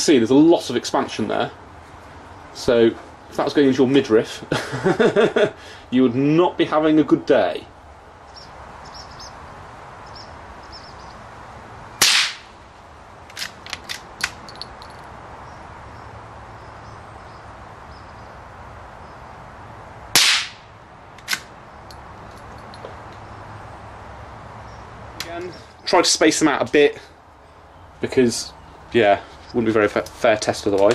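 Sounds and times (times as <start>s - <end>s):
rifle shots: 12.0s - 12.5s, 20.2s - 20.6s
metallic bolt clicks: 13.3s - 15.0s.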